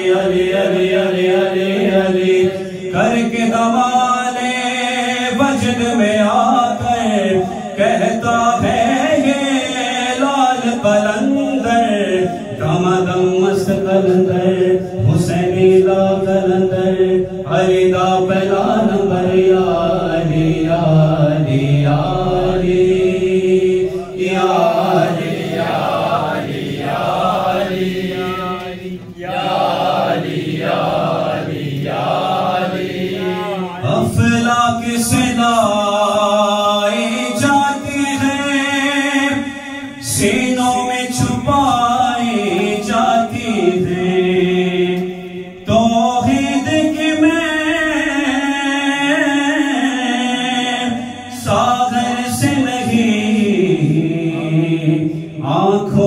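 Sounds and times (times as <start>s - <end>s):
man singing through microphone: 0.0s - 29.5s, 32.6s - 56.0s
voices chanting rhythmically: 13.8s - 35.3s.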